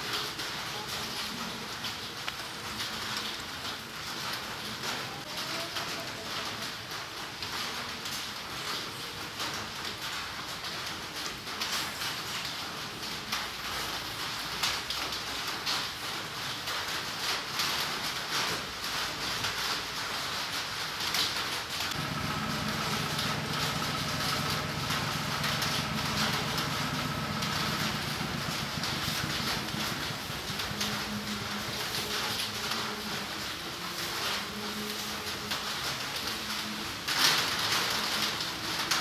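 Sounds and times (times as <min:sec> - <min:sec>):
low motor-like hum: 0:21.9 - 0:32.0.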